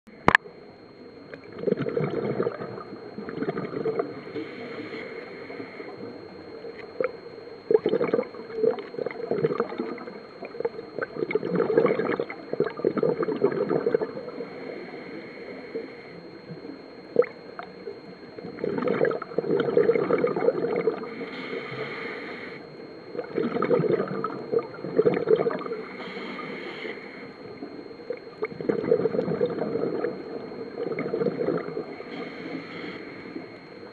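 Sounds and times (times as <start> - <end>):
regulator bubbles gurgling: 0.1 - 33.9
regulator inhalation hiss: 4.2 - 6.1, 21.0 - 22.7, 25.7 - 27.5, 31.9 - 33.6.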